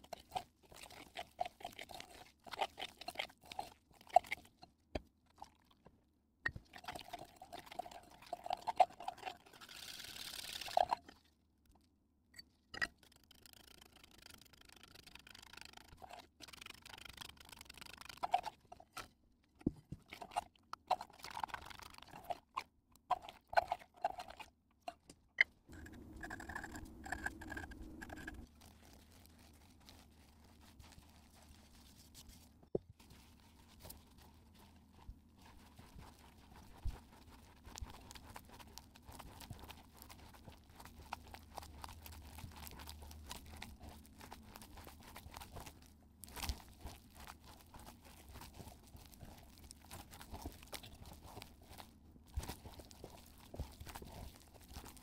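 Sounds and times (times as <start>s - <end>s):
hand squishing cookie dough: 0.0s - 5.8s, 25.7s - 55.0s.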